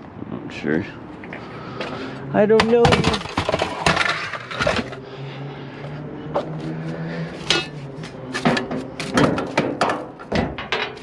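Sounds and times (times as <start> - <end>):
metal equipment clattering: 7.4 - 7.8.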